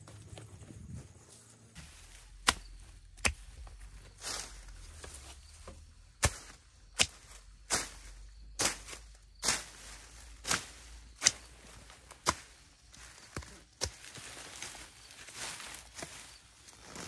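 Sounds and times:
hand tool chopping strikes: 2.4 - 3.8, 6.2 - 8.0, 10.5 - 11.5.

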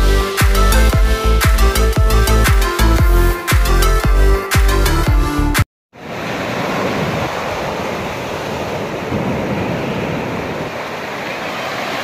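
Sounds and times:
surf breaking on shore: 6.0 - 12.0.

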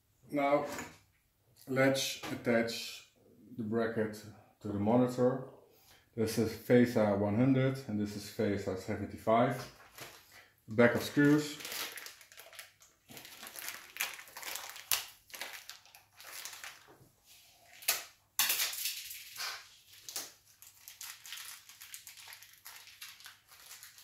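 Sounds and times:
plastic bag crinkling: 9.8 - 10.4, 11.0 - 17.0, 17.6 - 24.0.

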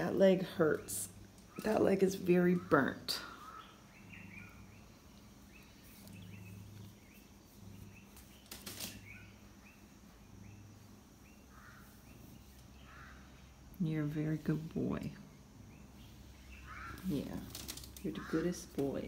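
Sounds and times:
small birds chirping faintly: 0.0 - 19.0
brief rustle: 8.1 - 9.2.

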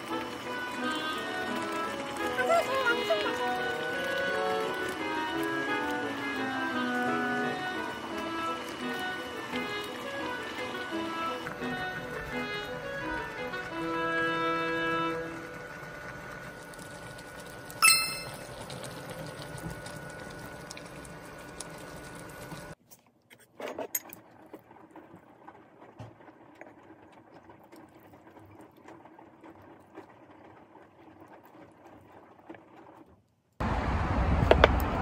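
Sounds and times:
stew bubbling on stove: 0.0 - 22.8, 24.2 - 33.7
sharp ringing clink: 17.8 - 18.4.

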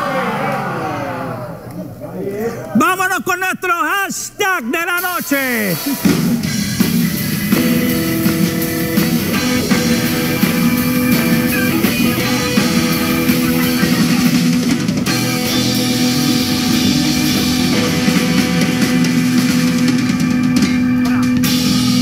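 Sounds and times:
drum kit beat: 4.8 - 22.0
electric guitar chords: 5.8 - 22.0.

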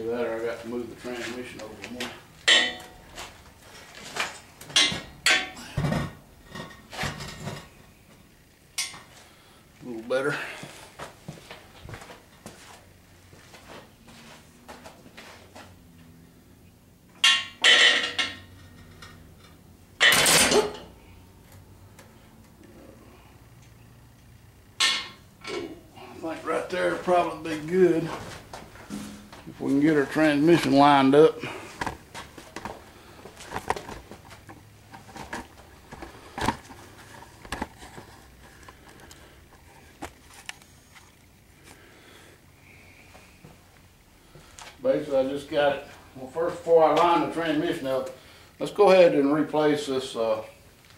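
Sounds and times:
footsteps on concrete floor: 10.6 - 15.8.

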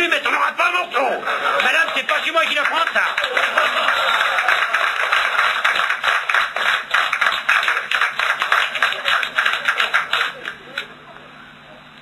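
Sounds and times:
audience laughing: 1.0 - 6.0, 7.5 - 10.8
audience applauding: 1.1 - 11.0.

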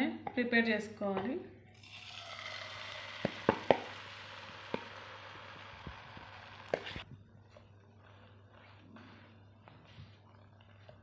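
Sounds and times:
batter sizzling in hot oil: 1.8 - 7.0.

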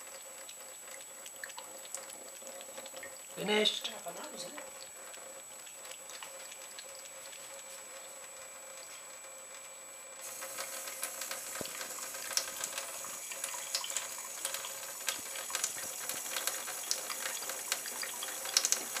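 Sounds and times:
cat lapping water: 0.4 - 3.4, 4.6 - 7.7, 10.2 - 19.0
tap water running into sink: 10.2 - 19.0.

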